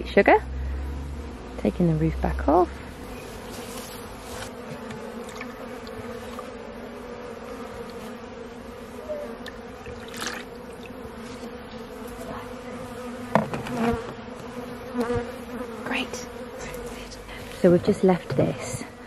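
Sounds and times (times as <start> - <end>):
honey bees buzzing: 0.0 - 19.0.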